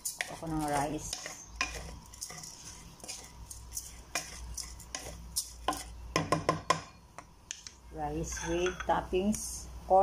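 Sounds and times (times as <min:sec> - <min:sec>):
hand stirring rice in a pot: 0:00.0 - 0:06.2.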